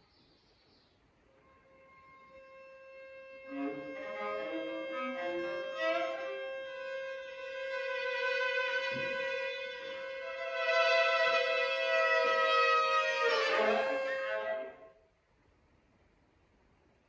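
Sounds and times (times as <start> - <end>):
viola and cello playing: 1.3 - 15.0.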